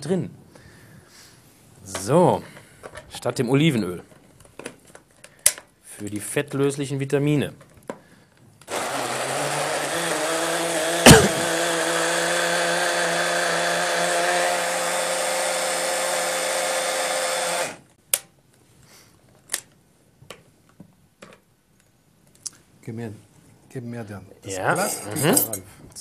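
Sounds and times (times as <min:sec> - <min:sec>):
blender running: 0:08.7 - 0:17.9.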